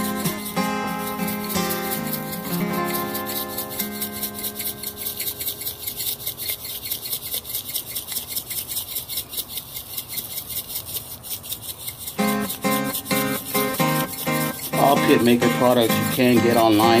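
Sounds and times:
acoustic guitar music: 0.0s - 5.9s, 12.2s - 17.0s
spice shaker rattling: 0.0s - 17.0s.

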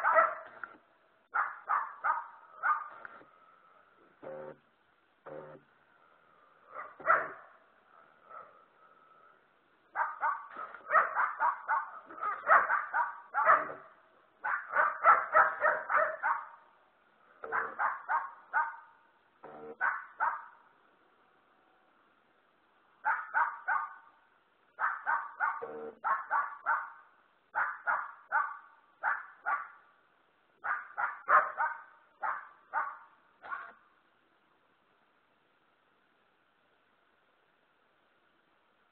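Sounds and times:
dogs barking rapidly: 0.0s - 0.7s, 1.3s - 3.2s, 6.7s - 8.6s, 9.9s - 16.7s, 17.4s - 19.0s, 19.7s - 20.6s, 23.0s - 24.1s, 24.8s - 29.8s, 30.6s - 33.8s.

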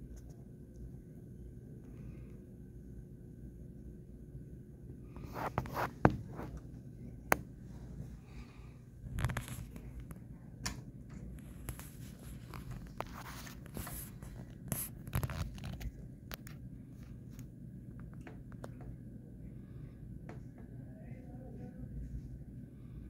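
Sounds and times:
handling and rustling noise: 9.0s - 10.3s, 11.1s - 16.0s.

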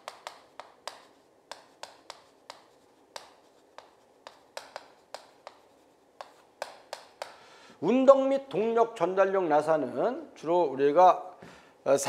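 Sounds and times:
chalk scratching: 0.0s - 7.4s
chalk tapping on chalkboard: 0.0s - 7.5s.

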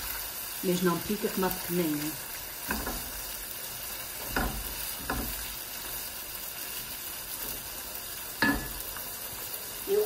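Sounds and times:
meat and vegetables sizzling: 0.0s - 10.0s
spatula striking a pot: 2.6s - 3.2s, 4.2s - 5.5s, 8.4s - 8.8s.

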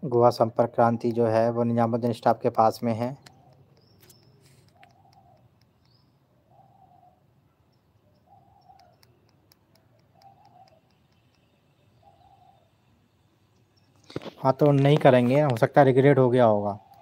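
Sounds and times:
bird hooting calls: 3.2s - 12.9s, 16.7s - 17.0s.

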